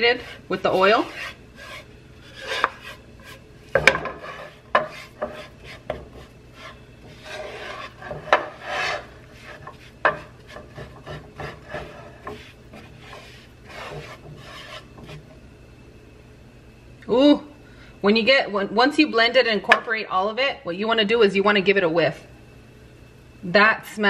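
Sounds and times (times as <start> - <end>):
wooden spoon scraping a pan: 0.0 - 15.4.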